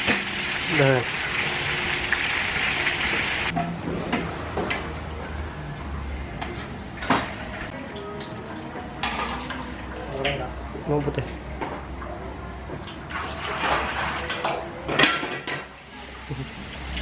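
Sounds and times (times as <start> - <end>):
hot oil sizzling: 0.0 - 3.6, 15.6 - 17.0.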